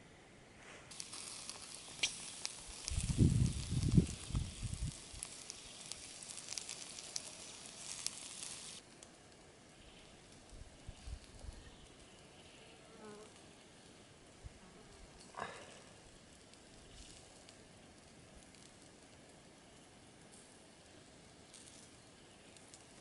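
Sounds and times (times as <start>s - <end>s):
sharp crackles: 0.6s - 14.1s, 15.2s - 23.0s
skewers sizzling over embers: 0.6s - 23.0s.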